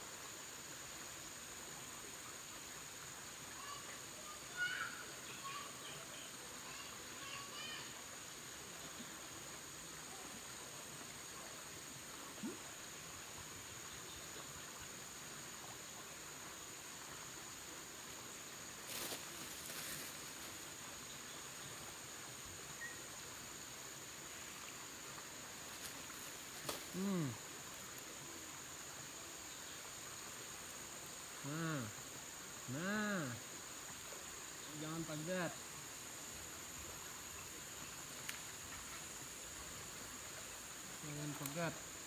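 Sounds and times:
high-pitched insect drone: 18.9s - 21.4s, 22.4s - 28.2s, 28.8s - 42.0s
bird chirps: 22.8s - 23.0s.

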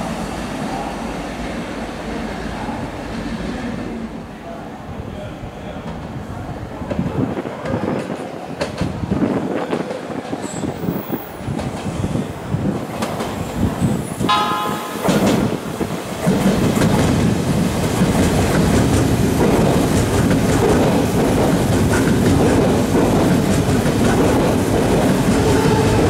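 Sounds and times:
train wheel rumble and clatter: 5.9s - 14.3s, 15.0s - 26.0s
train horn toot: 14.3s - 15.2s, 25.3s - 26.0s.

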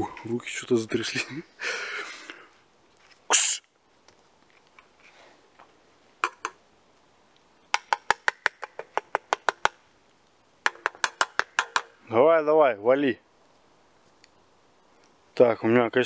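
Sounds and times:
sharp hissing burst: 3.3s - 3.7s.

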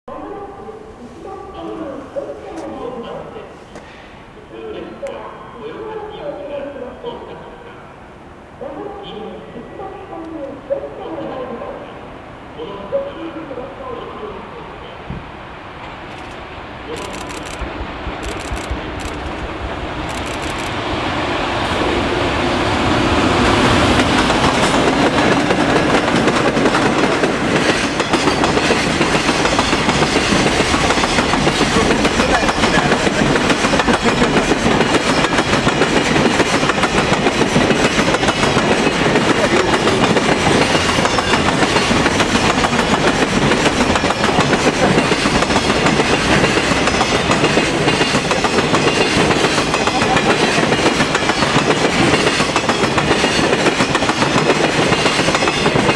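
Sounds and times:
electric locomotive passing: 0.1s - 55.9s
freight wagons rumbling: 23.9s - 47.9s.

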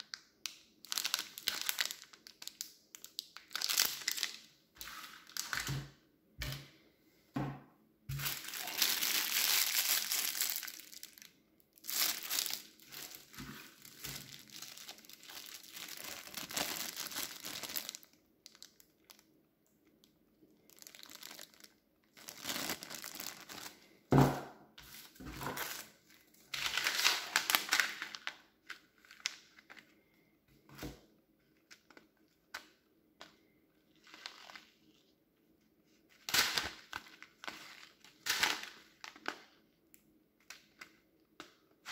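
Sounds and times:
plastic wrappers crinkling: 0.0s - 5.8s, 8.1s - 19.3s, 19.9s - 24.1s, 24.8s - 30.1s, 33.9s - 35.1s, 36.1s - 39.6s.

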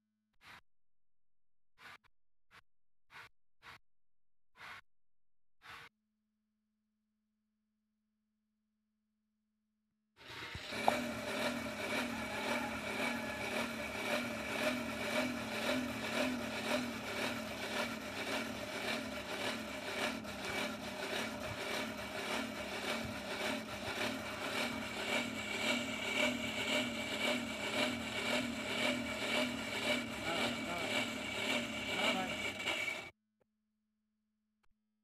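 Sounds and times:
blower whirring hum: 10.2s - 33.1s.

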